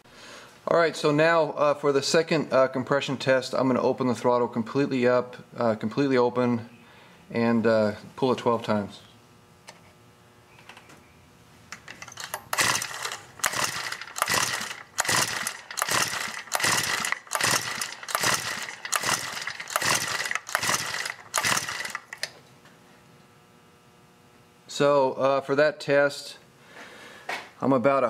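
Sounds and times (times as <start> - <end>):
recoil starter rasping pulls: 11.8 - 22.4.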